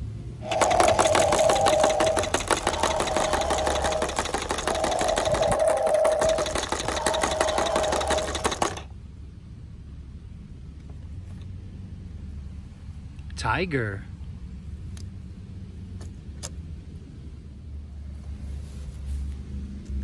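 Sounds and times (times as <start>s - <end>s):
toy truck engine sound effect: 0.4s - 8.9s.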